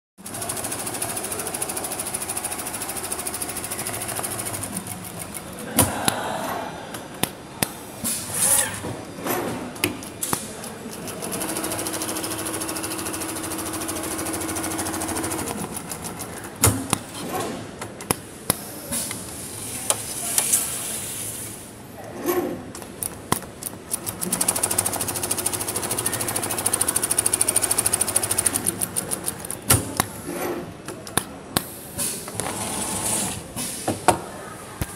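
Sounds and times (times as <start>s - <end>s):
sewing machine needle hammering: 0.2s - 5.6s, 10.9s - 17.1s, 23.3s - 30.0s.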